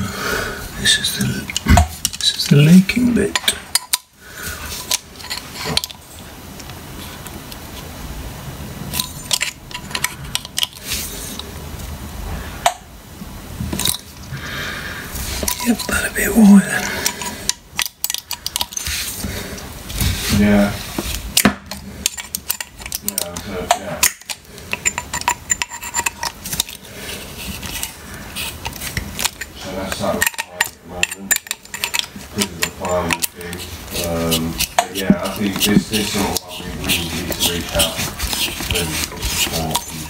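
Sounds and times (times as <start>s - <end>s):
hands rustling: 15.1s - 40.0s
pliers clicking and scraping on metal: 21.7s - 26.8s.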